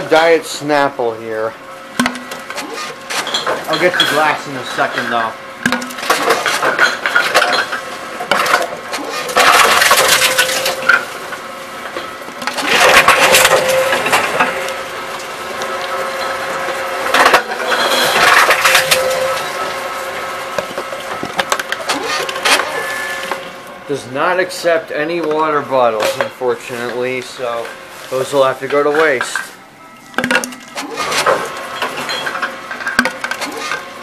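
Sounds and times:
steady motor hum: 0.0s - 34.0s
plastic bottles rattling and clattering: 2.0s - 11.0s, 12.4s - 14.7s, 16.2s - 19.5s, 28.2s - 33.8s.

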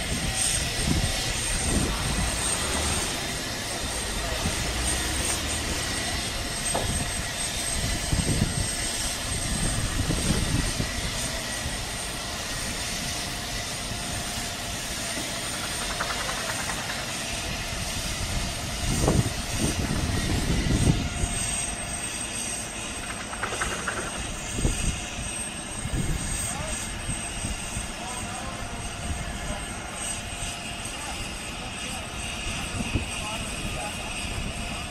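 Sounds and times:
low rumbling swells: 0.0s - 11.2s.

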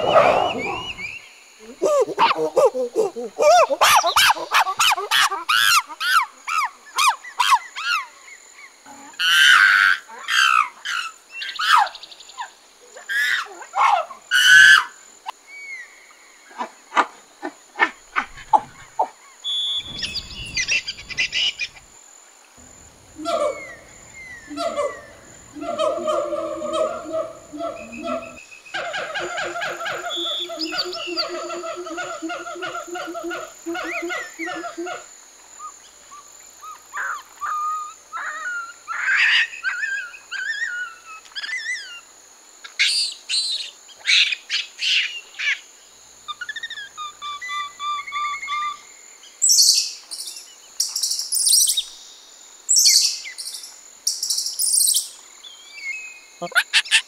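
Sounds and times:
repeated pitched animal calls: 0.0s - 7.9s, 22.6s - 35.1s
bird chirping and whistling: 0.2s - 1.2s, 19.5s - 21.8s, 30.1s - 31.3s
bird trill: 18.4s - 21.8s, 23.1s - 32.7s.

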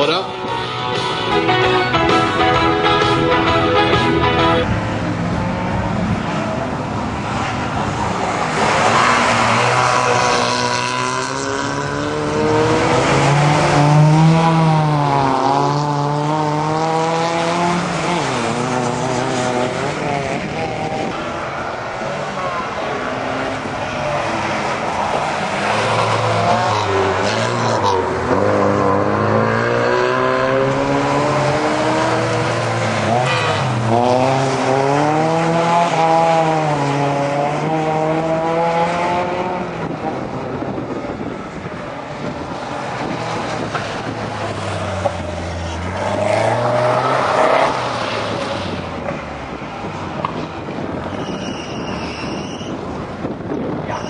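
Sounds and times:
race car engines revving: 0.0s - 54.0s.

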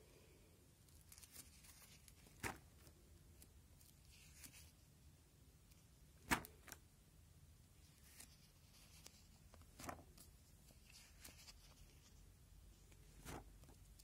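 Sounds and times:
plastic pages flipping: 0.9s - 4.8s, 5.7s - 6.8s, 7.8s - 12.2s, 12.8s - 14.0s.

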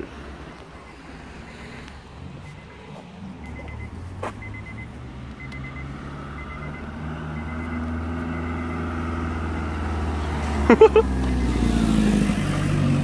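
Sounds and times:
vehicle engine running: 0.0s - 13.0s
faint short beeps: 2.4s - 8.9s.

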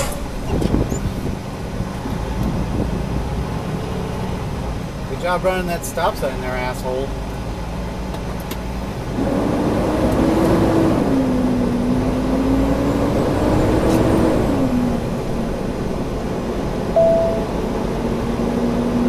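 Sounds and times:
truck diesel engine accelerating: 7.0s - 19.0s.

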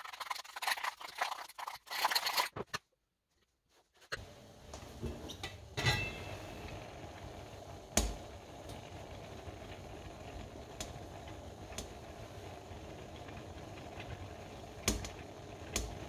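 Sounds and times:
metal pot lid clink: 5.4s - 6.4s.

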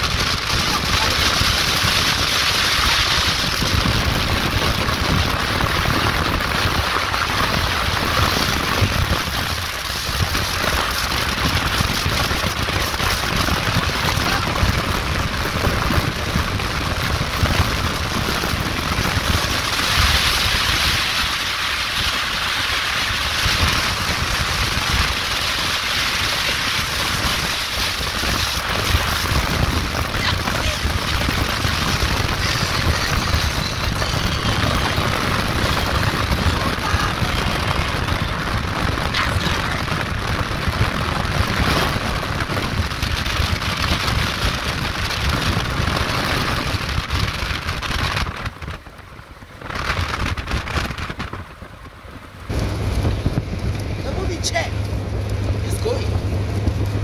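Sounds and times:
car road and engine rumble: 0.0s - 57.0s
wind rushing over microphone: 0.0s - 57.0s.

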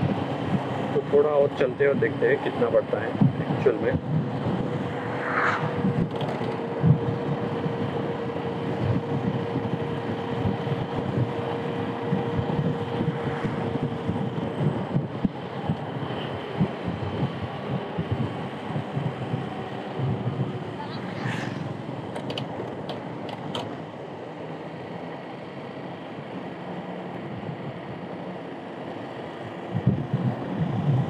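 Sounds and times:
tyre-on-road noise: 0.0s - 31.0s
wind on microphone: 1.9s - 22.6s, 29.7s - 31.0s.

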